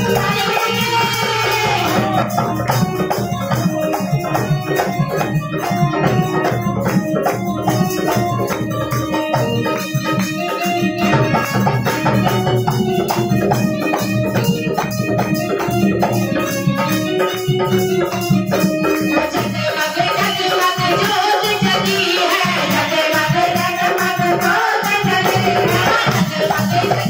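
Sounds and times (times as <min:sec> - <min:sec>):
hand percussion beat: 0:00.0 - 0:27.0
organ-like chords: 0:01.6 - 0:19.7.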